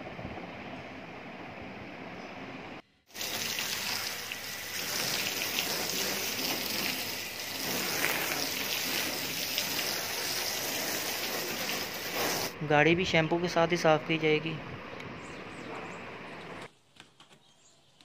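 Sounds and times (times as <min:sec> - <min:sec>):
hose water spraying on car: 0:03.1 - 0:12.6.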